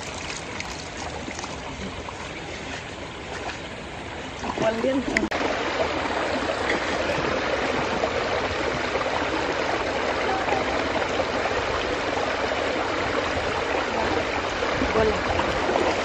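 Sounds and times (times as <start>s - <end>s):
wading through muddy water: 0.0s - 16.0s.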